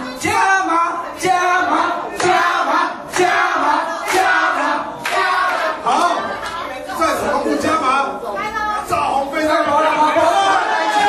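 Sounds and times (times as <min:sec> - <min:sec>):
clapping on the beat: 0:02.1 - 0:06.6.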